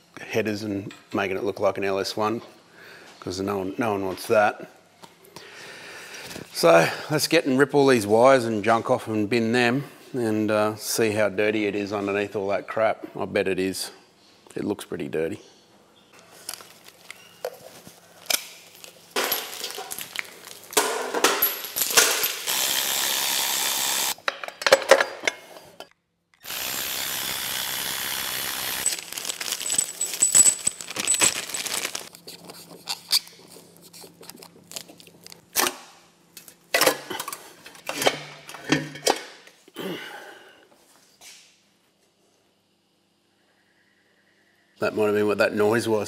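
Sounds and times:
metal parts clinking: 19.2s - 22.5s, 28.7s - 32.1s.

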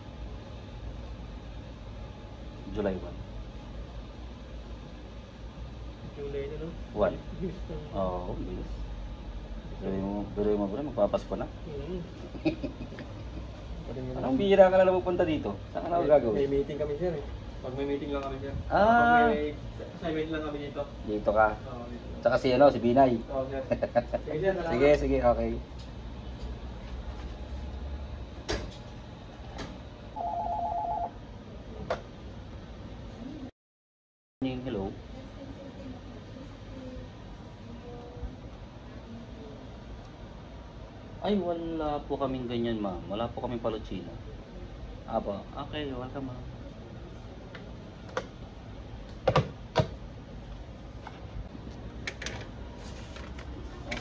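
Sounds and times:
desk telephone ringing: 30.2s - 31.2s.

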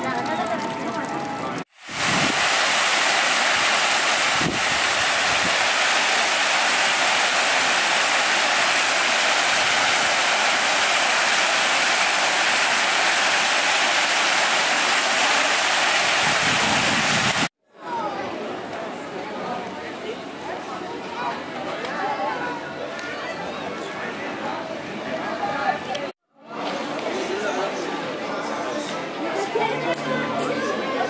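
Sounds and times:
fountain water splashing: 0.0s - 17.5s.

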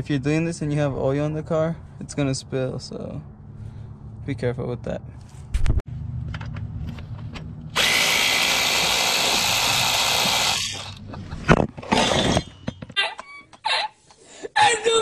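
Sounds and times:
cordless drill spinning: 7.8s - 11.0s.

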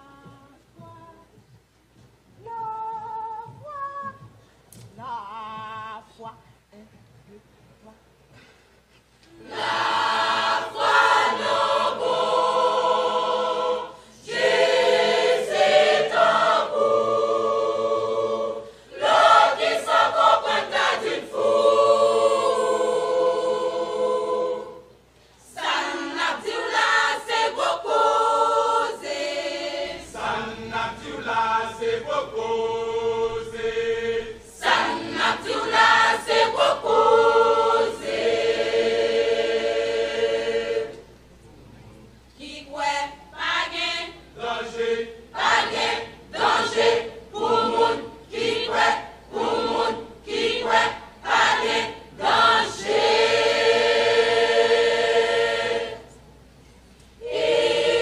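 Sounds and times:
church choir singing: 9.3s - 41.2s, 42.4s - 56.2s, 57.2s - 58.0s.

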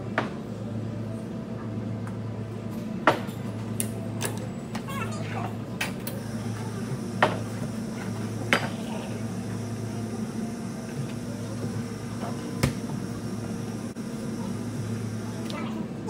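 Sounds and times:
low appliance hum: 0.0s - 16.0s.

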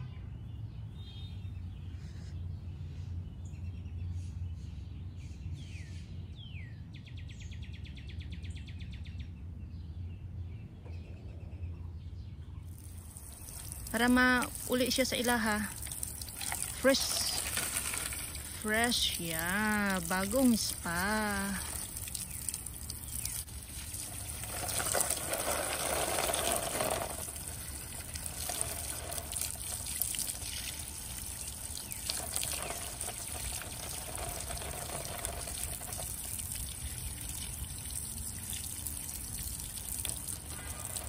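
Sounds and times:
water pouring and splashing: 12.7s - 41.0s.

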